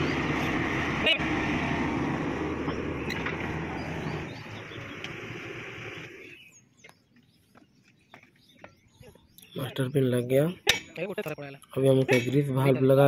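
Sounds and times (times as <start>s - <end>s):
birds chirping: 0.0s - 13.0s
engine humming: 0.0s - 13.0s.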